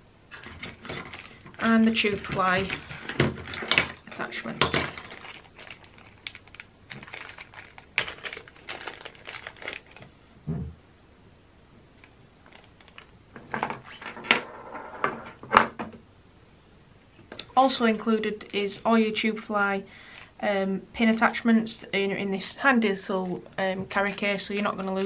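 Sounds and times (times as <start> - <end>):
plastic bag crinkling: 1.0 - 10.1, 12.0 - 13.2.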